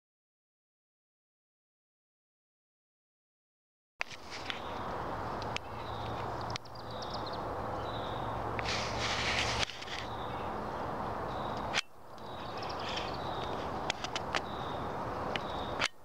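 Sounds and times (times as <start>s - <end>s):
steady background hiss: 4.0s - 16.0s
swifts chipping and twittering: 4.0s - 16.0s.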